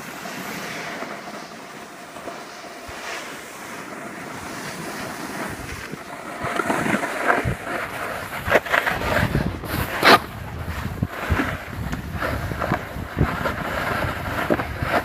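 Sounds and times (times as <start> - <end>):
snowboards scraping on snow: 0.0 - 15.0
wind on microphone: 2.8 - 15.0.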